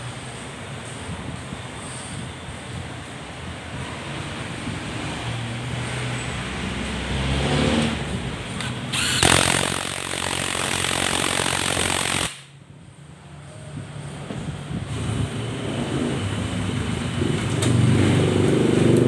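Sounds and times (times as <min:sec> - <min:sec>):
impact wrench hammering bolt: 0:08.6 - 0:12.5.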